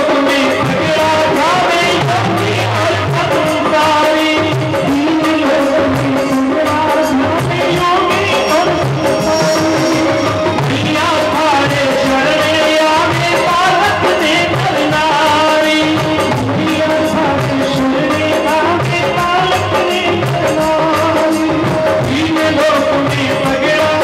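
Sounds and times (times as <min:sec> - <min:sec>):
drum beat: 0:00.0 - 0:24.0
man singing devotional song: 0:00.0 - 0:24.0
instrumental drone: 0:07.3 - 0:13.6.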